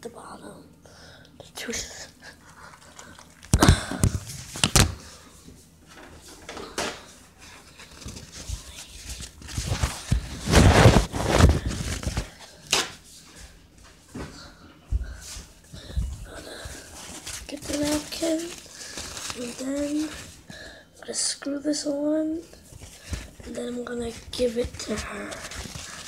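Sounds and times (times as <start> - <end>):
rustling and clattering: 5.9 - 12.9.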